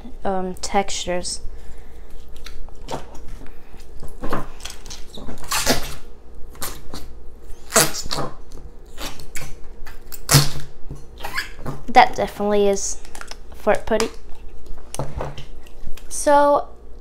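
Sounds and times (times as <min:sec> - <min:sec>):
putty fart noises: 0:05.2 - 0:09.6, 0:10.2 - 0:11.8.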